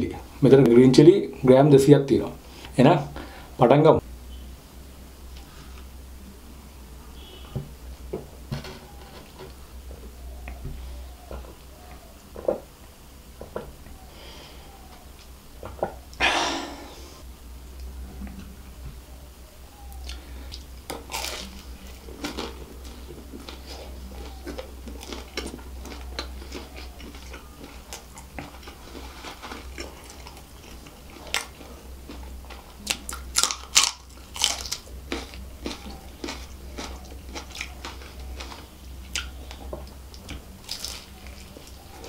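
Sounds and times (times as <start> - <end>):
steady low hum: 0.0 - 42.0
chewing crunchy pastry: 20.0 - 42.0.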